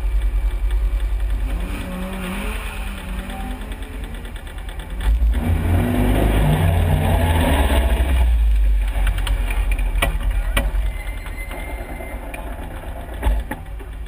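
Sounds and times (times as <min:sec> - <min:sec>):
sports car engine running: 0:00.0 - 0:11.0.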